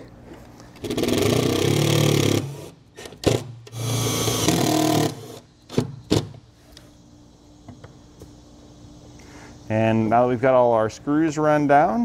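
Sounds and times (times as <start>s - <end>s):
cordless drill motor whine: 3.7s - 5.4s.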